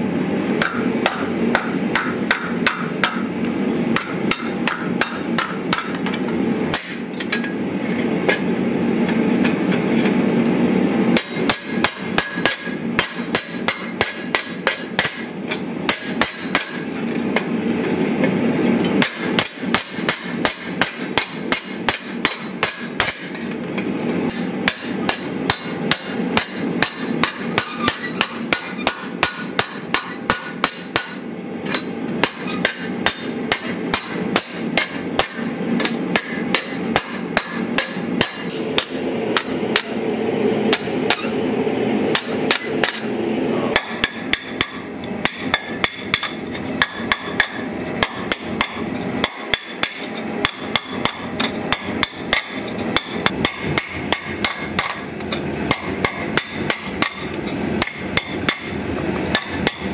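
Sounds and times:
steady rushing noise: 32.9s - 59.9s.

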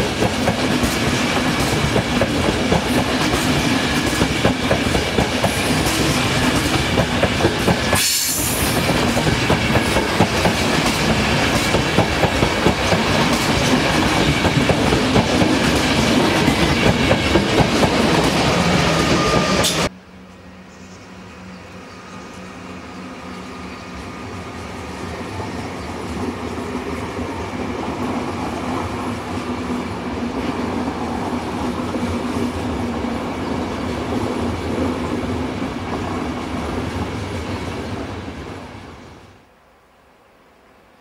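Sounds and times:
train passing on rails: 0.0s - 39.5s.

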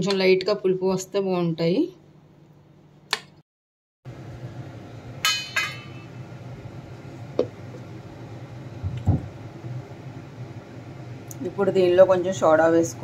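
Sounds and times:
low kitchen hum: 0.0s - 3.4s, 4.1s - 13.0s
kitchenware clinking: 5.2s - 6.1s.

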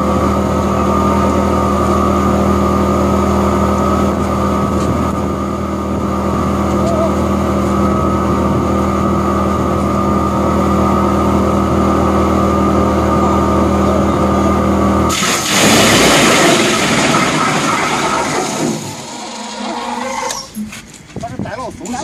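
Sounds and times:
wood chipper chipping log: 12.2s - 20.4s.

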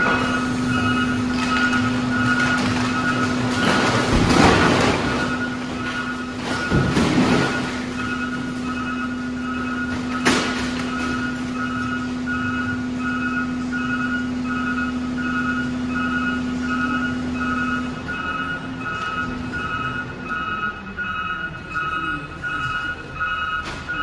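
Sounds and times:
truck engine and hydraulics hum: 0.0s - 24.0s
vehicle alarm beeping: 0.0s - 24.0s.

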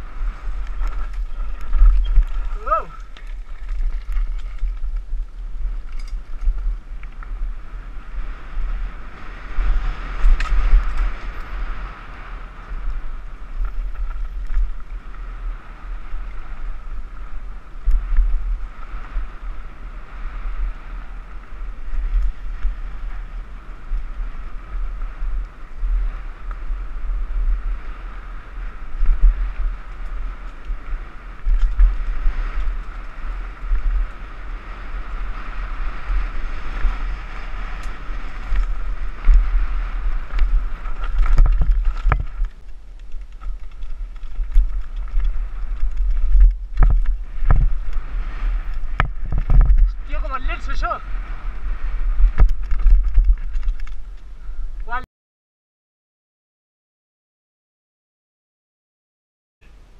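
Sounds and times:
tyres rolling on dirt: 0.0s - 7.3s, 36.6s - 48.1s
wind buffeting microphone: 0.0s - 55.0s.

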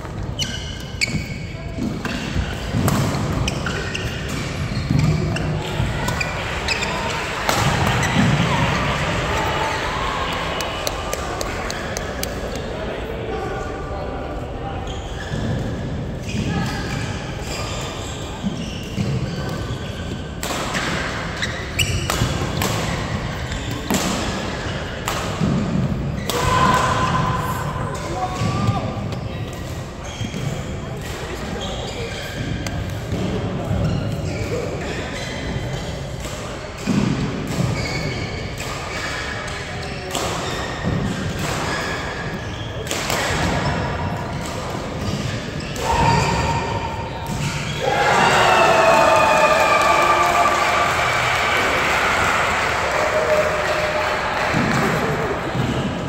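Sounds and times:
shoes squeaking on court floor: 0.0s - 8.4s, 14.8s - 25.0s, 28.2s - 36.2s, 37.1s - 47.8s
rackets hitting shuttlecock: 1.1s - 6.4s, 20.4s - 27.2s, 35.7s - 41.8s, 42.8s - 47.8s.

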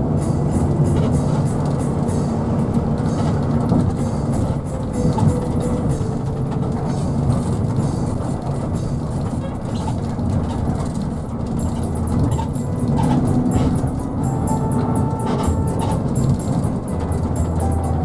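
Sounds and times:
vehicle driving rumble: 0.0s - 18.0s.

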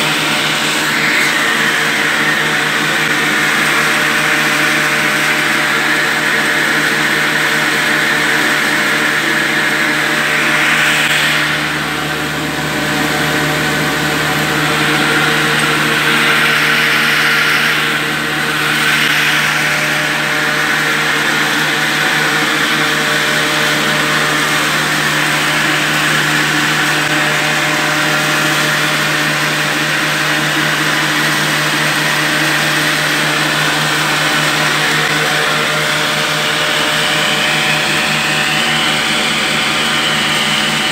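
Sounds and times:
flour grinder motor whirring: 0.0s - 40.9s.

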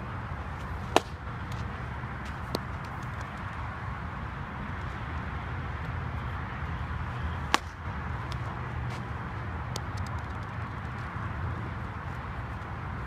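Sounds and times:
outdoor rumble and hiss: 0.0s - 13.0s
softball sharp crack: 0.6s - 3.5s, 7.3s - 9.1s.

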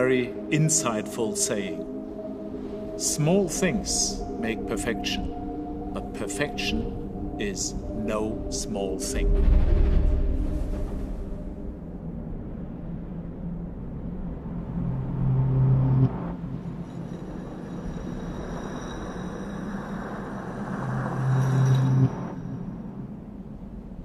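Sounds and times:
low cinematic rumble: 6.8s - 18.5s
faint high ringing tones: 15.3s - 23.3s.

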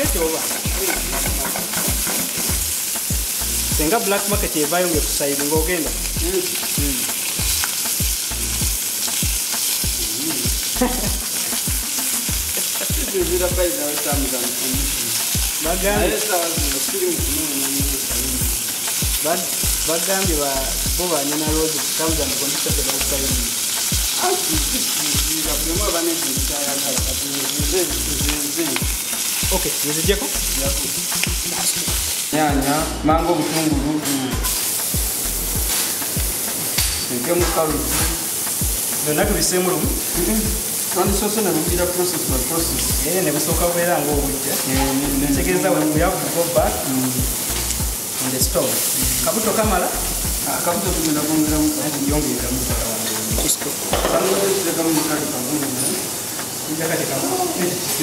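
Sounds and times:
metal tongs turning food: 0.0s - 3.4s
chicken sizzling in hot oil: 0.0s - 58.0s.

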